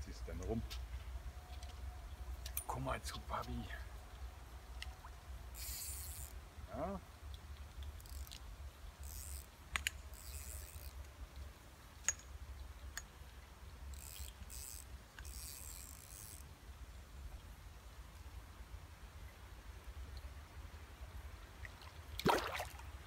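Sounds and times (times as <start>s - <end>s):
fishing reel whirring: 5.5s - 6.4s, 8.0s - 8.4s, 9.0s - 11.0s, 13.9s - 16.4s.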